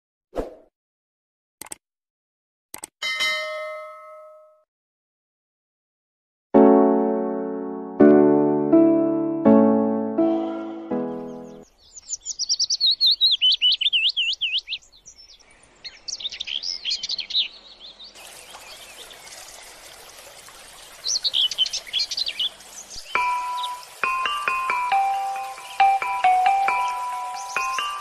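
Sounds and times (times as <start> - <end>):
songbird singing: 10.3 - 28.0
chiming mallet percussion music: 23.1 - 28.0.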